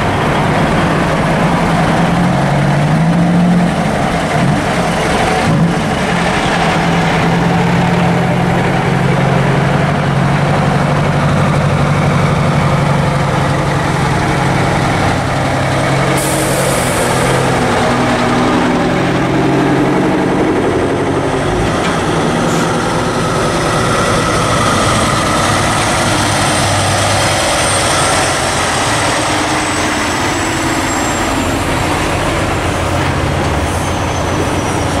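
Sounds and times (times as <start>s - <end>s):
diesel truck engines running: 0.0s - 35.0s
air brake hiss: 16.2s - 17.2s.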